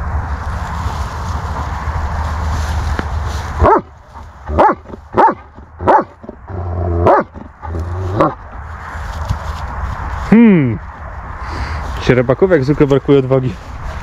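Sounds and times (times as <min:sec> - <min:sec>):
dog barking: 0:03.6 - 0:03.9, 0:04.5 - 0:06.2, 0:07.0 - 0:07.4.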